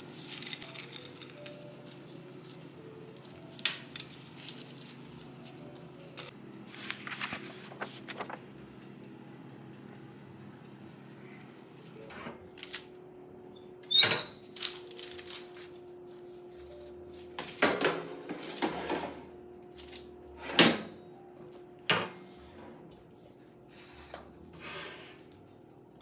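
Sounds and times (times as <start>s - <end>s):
steady hum: 0.0s - 13.9s, 14.6s - 26.0s
metal tray clanking in oven: 17.5s - 19.3s.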